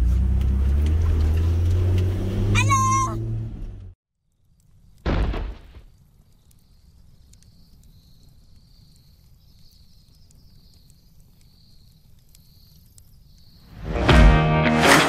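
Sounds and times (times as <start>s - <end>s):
faint ticks: 6.0s - 13.6s
soft high insect-like chirp: 6.4s - 13.7s.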